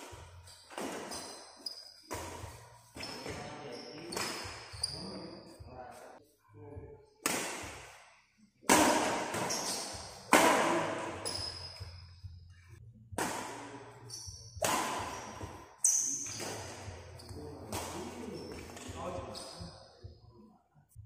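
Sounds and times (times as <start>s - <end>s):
rackets hitting shuttlecock: 0.0s - 1.4s, 2.0s - 3.4s, 4.1s - 4.8s, 7.2s - 8.0s, 8.7s - 11.5s, 13.1s - 13.8s, 14.6s - 16.9s
shoe squeaks on court: 0.4s - 5.7s, 9.3s - 10.3s, 11.1s - 12.2s, 14.0s - 19.9s.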